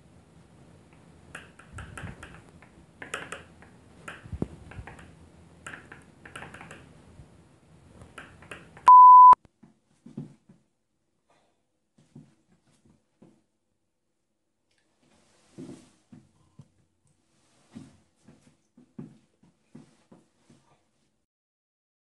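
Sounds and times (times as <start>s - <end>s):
censor bleep: 8.9s - 9.4s.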